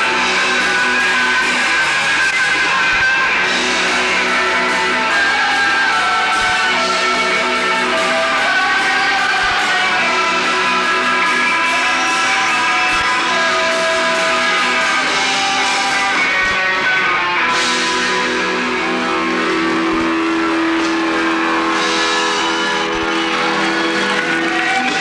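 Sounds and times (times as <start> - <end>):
live rock band: 0.0 - 25.0
strummed electric guitars: 0.0 - 25.0.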